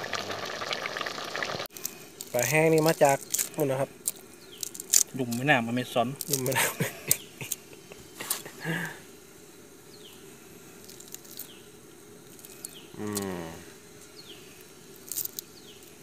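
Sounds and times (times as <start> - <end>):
water bubbling: 0.0 - 1.7
gas burner hissing: 0.0 - 16.0
short low voiced sound: 13.0 - 13.7.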